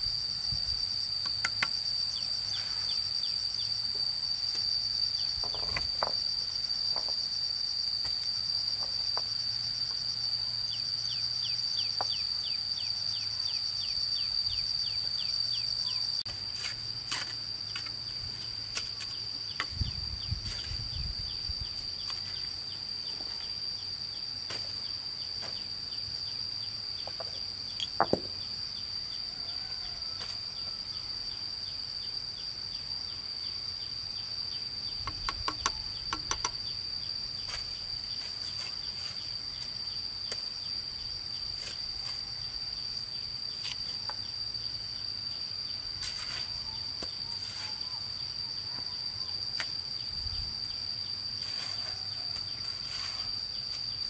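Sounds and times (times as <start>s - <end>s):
insect ticking chirps: 0.0s - 54.0s
insects shrilling chorus: 0.0s - 54.0s
stones and trowel knocking: 27.1s - 28.4s.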